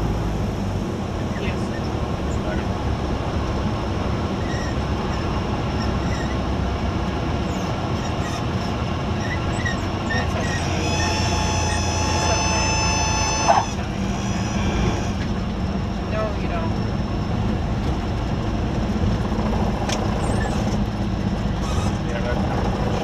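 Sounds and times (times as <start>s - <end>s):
idling airplane engine: 0.0s - 23.0s
reedy stall warning horn: 10.6s - 15.3s.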